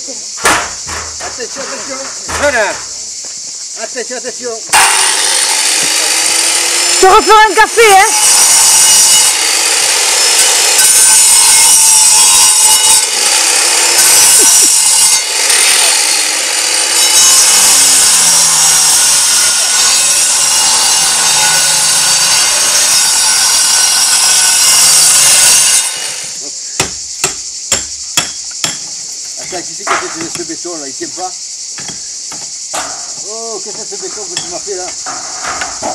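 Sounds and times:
angle grinder cutting concrete: 4.7 - 26.4.

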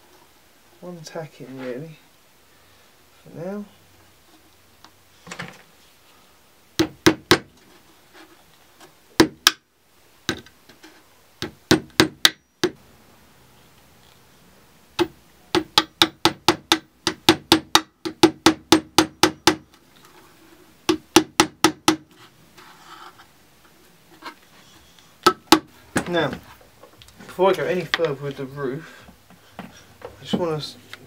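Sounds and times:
hammer tapping nail into wood: 6.8 - 7.5, 15.0 - 19.6.

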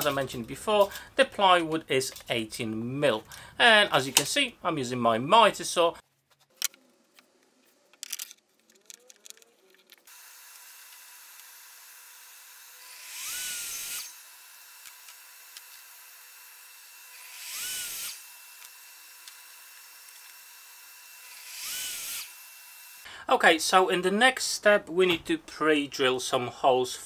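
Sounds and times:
miter saw cutting wood: 10.0 - 23.0.

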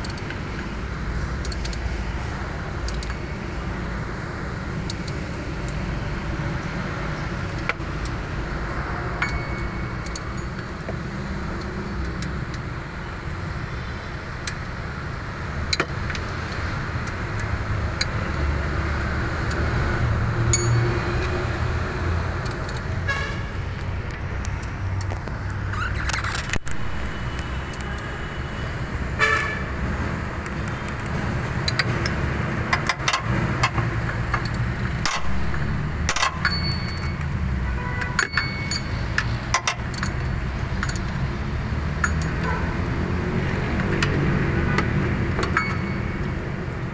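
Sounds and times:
low rumble of vehicles: 0.0 - 46.9
metal tools clinking against metal: 38.2 - 40.2.

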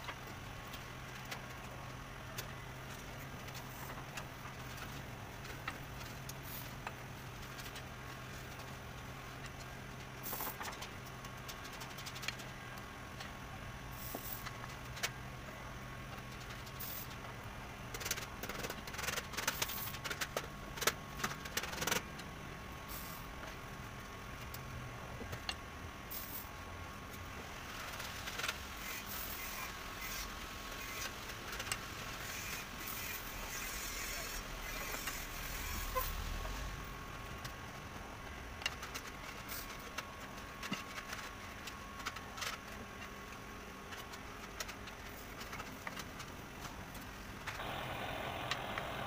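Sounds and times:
steady low hum: 32.0 - 49.0.

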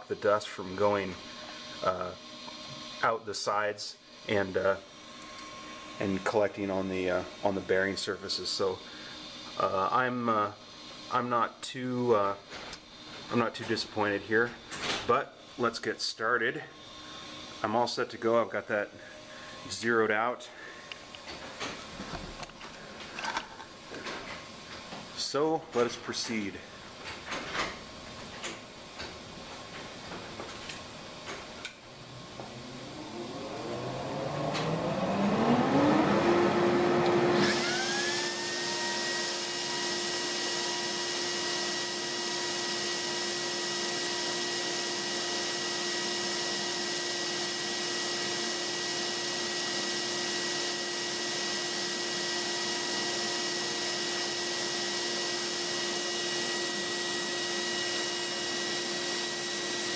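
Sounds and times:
router spindle whining: 0.0 - 24.4, 30.8 - 59.9
vacuum air rushing: 18.7 - 23.2.

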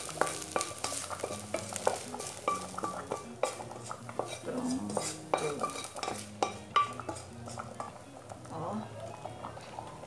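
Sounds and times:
metal spoon scraping metal pan: 0.0 - 8.0.

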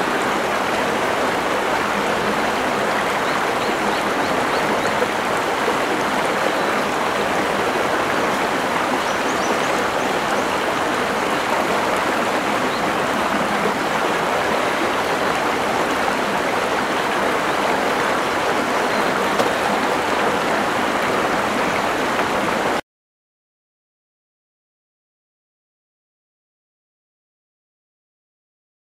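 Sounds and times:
river flowing over rocks: 0.0 - 22.8.

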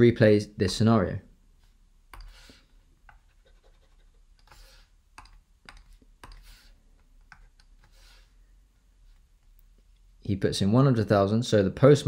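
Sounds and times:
stylus scratching on tablet: 1.6 - 8.4.

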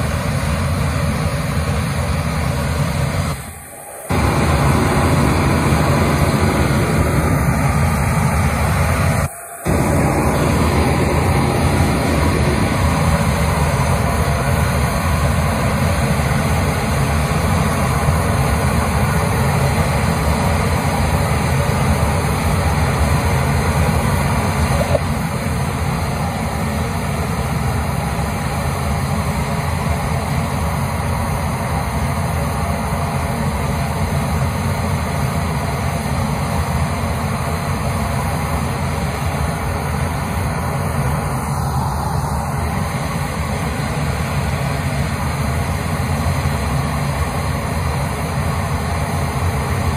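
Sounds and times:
low mechanical rumble: 0.0 - 28.6.

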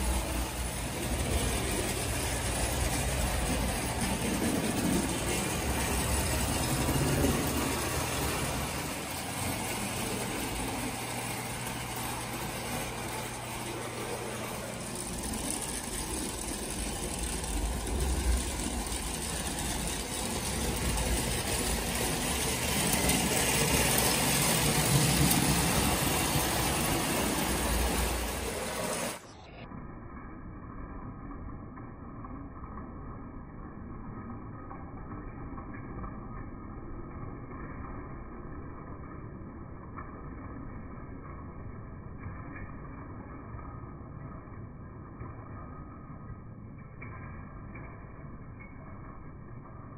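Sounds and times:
toy train motor whir: 0.0 - 29.3
toy train wheel rumble: 0.0 - 29.4.

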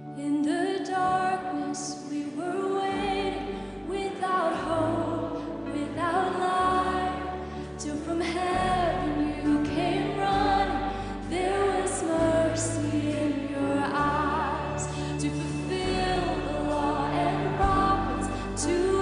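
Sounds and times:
woman singing into a microphone: 0.0 - 19.0
orchestra and piano: 4.1 - 19.0
held bass notes: 4.7 - 19.0.

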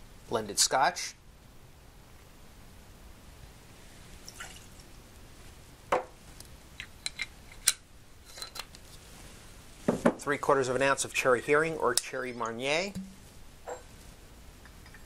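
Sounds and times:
liquid pouring: 4.2 - 4.8.

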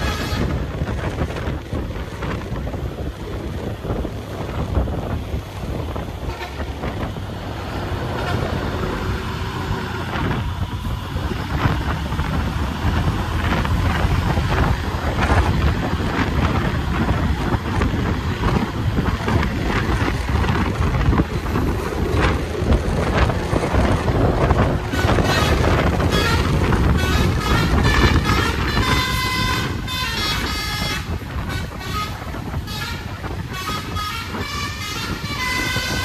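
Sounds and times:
heavy vehicle engine rumbling: 0.0 - 36.0
wind buffeting microphone: 0.0 - 36.0.

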